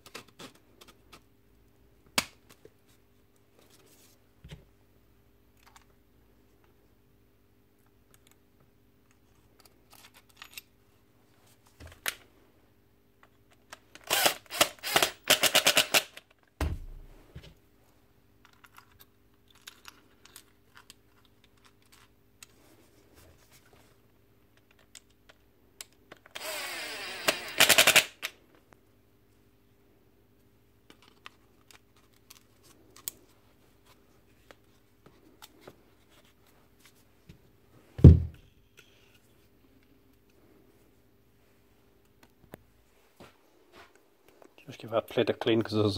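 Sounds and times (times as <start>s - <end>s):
faint steady hum: 0.0s - 45.9s
low thud: 16.6s - 17.2s, 38.0s - 38.4s.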